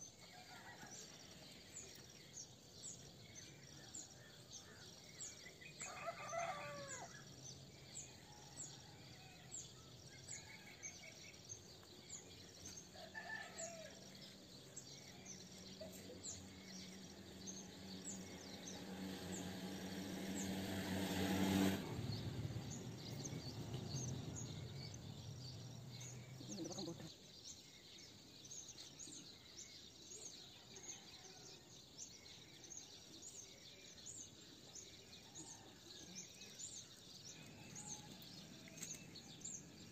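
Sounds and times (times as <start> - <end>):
rooster-like call: 5.8 - 7.2
birds chirping: 22.0 - 31.0.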